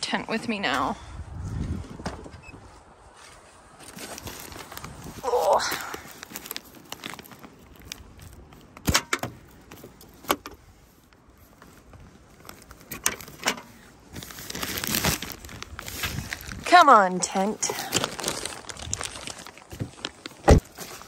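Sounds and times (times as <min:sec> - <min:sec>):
plastic wrapping rustling: 0:03.8 - 0:08.8, 0:10.9 - 0:21.0.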